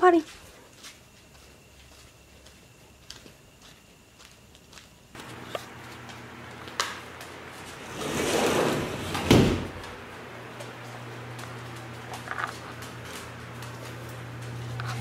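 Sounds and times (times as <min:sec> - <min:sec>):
steady low hum: 0:00.3 - 0:15.0
door sliding along track: 0:05.2 - 0:15.0
door shutting with heavy thud: 0:07.8 - 0:10.0.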